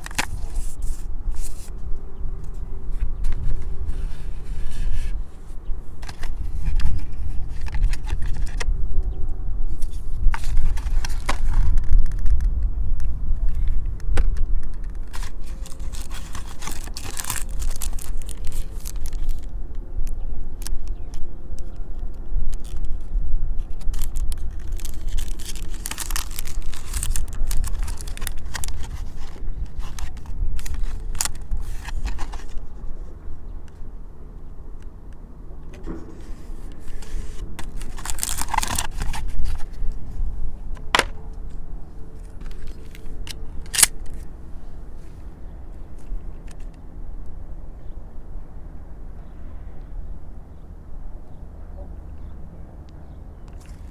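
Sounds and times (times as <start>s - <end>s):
packaging rustling and crinkling: 0.0s - 1.7s, 10.3s - 12.4s, 14.8s - 19.5s, 23.6s - 32.7s, 36.2s - 39.9s
steady low rumble: 0.0s - 53.9s.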